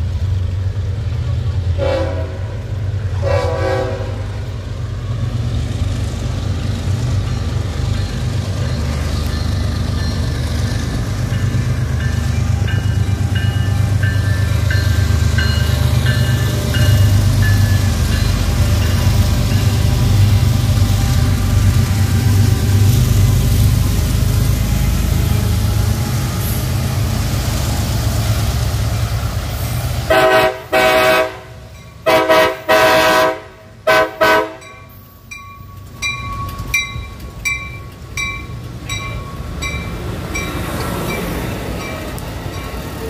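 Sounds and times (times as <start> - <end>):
diesel locomotives rumbling: 0.0 - 43.0
train horn blasts: 1.7 - 4.5, 30.1 - 34.8
train bell ringing: 7.2 - 22.4, 31.6 - 32.1, 34.6 - 43.0.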